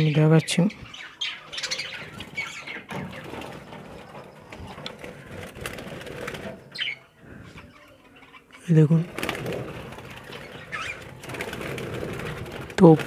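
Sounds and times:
birds flapping wings: 2.0s - 6.9s, 8.9s - 13.0s.

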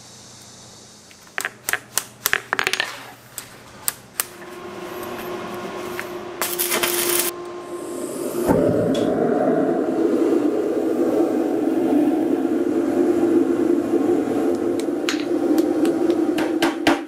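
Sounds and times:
steady hum: 3.1s - 17.0s
harsh noise: 4.3s - 16.8s.

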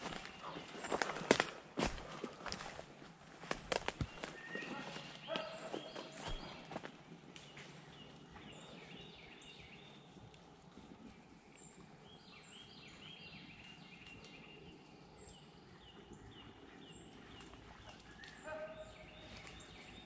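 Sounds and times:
distant dogs baying: 0.0s - 2.8s, 4.2s - 6.8s, 18.1s - 19.5s.

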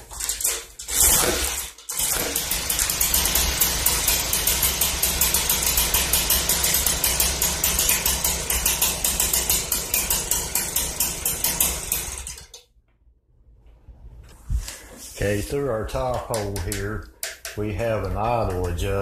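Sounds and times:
leaf blower engine pulsing: 0.0s - 12.6s.

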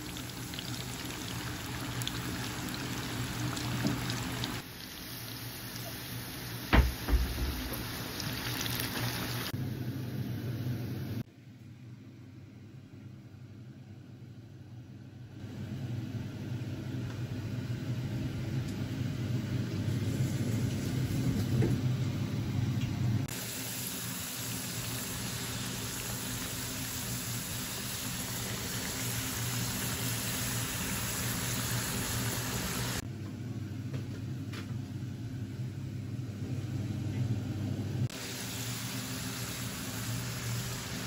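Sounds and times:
chips sizzling in oil: 0.0s - 9.5s, 23.3s - 33.0s, 38.1s - 41.0s
kitchen fan humming: 0.0s - 11.3s, 13.8s - 41.0s.

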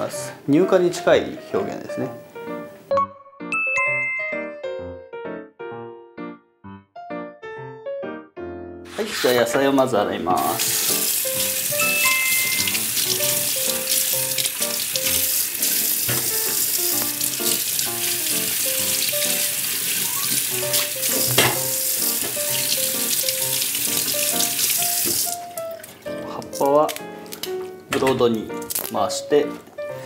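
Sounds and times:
light background music: 0.0s - 30.0s
tap water running into sink: 10.4s - 26.4s
water splashing over carrot: 10.4s - 27.0s.

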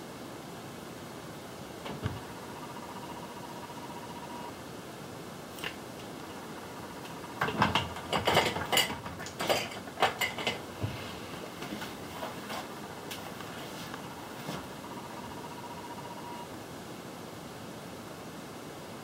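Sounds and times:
makeup containers clattering: 7.4s - 10.7s.

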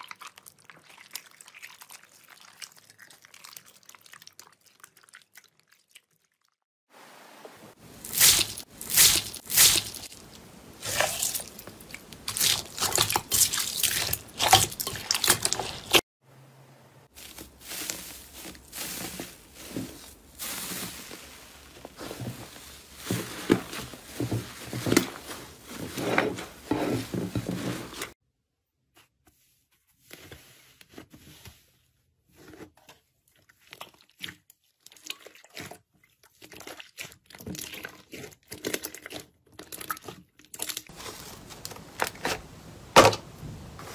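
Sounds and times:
slime squishing: 0.0s - 6.4s, 8.0s - 16.0s, 32.3s - 42.6s
crunchy slime crackling: 8.0s - 16.0s, 17.1s - 25.1s.

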